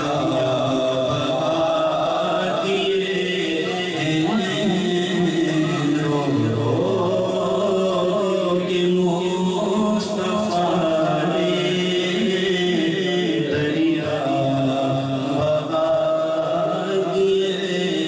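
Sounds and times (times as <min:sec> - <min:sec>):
man singing into a microphone: 0:00.0 - 0:18.0.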